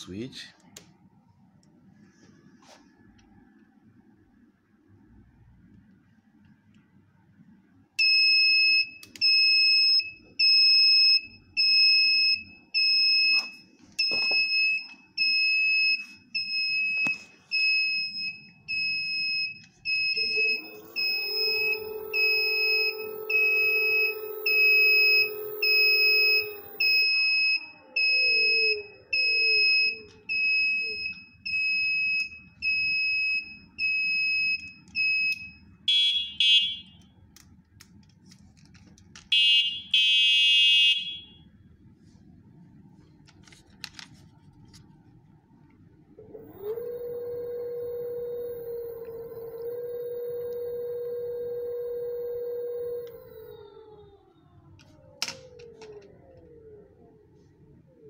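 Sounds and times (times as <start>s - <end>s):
electronic buzzer beeping: 20.2s - 28.1s
electric motor whine: 20.2s - 29.4s, 46.2s - 56.8s.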